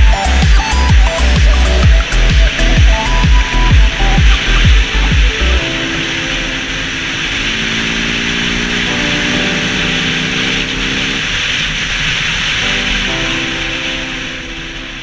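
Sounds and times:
motorcycle engine pulling: 0:06.8 - 0:12.6.

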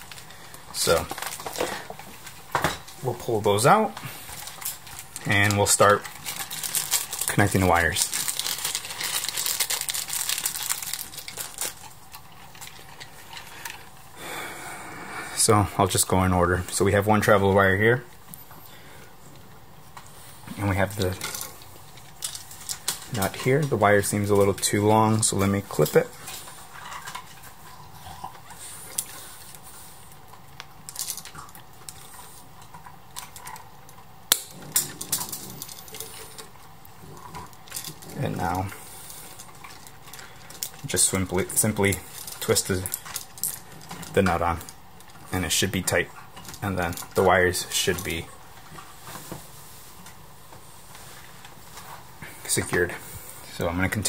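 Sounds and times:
plastic packaging crinkling: 0:00.0 - 0:14.0, 0:20.6 - 0:27.7, 0:30.4 - 0:49.1
wire handling clicks and rustles: 0:00.0 - 0:14.1, 0:19.8 - 0:54.0.

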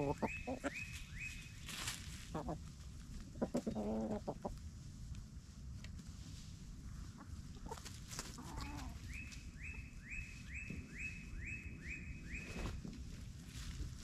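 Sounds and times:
chickens clucking: 0:00.0 - 0:04.8, 0:06.9 - 0:11.7
birds scratching through dry leaves: 0:00.0 - 0:10.8, 0:12.2 - 0:14.0.

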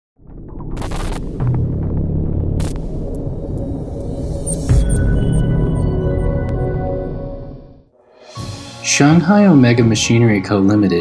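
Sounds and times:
deep rumbling swell: 0:00.2 - 0:09.7
low electronic hum: 0:00.8 - 0:07.8.

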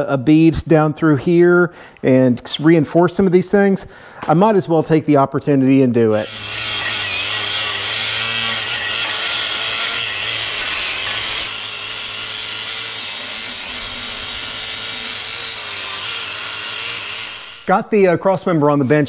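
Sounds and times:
angle grinder grinding metal: 0:06.0 - 0:17.7.

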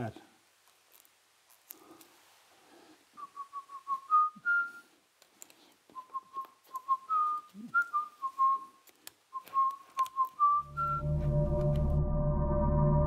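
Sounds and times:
person whistling a tune: 0:03.2 - 0:04.9, 0:05.9 - 0:11.4.

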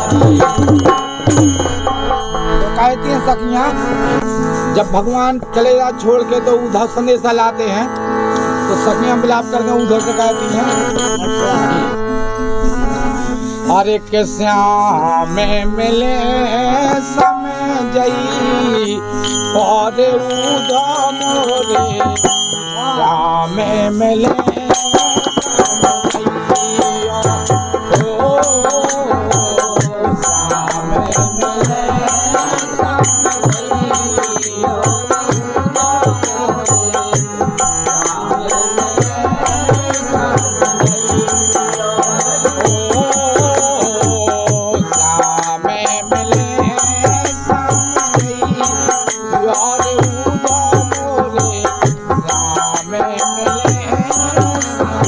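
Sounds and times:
hand drum beating a rhythm: 0:00.0 - 0:02.3, 0:24.2 - 0:55.0
voices singing: 0:00.0 - 0:06.5, 0:07.6 - 0:55.0
harmonium chords: 0:00.0 - 0:55.0.

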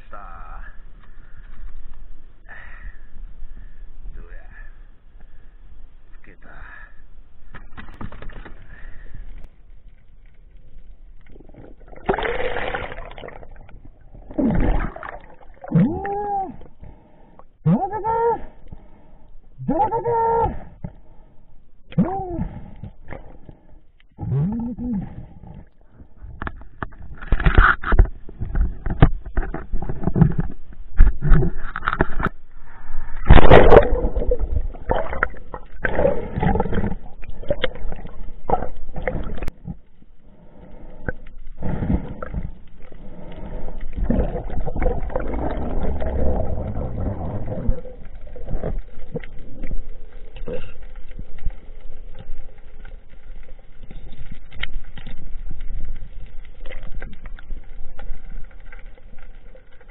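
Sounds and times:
water splashing and gurgling: 0:11.0 - 0:17.3, 0:21.9 - 0:59.9.

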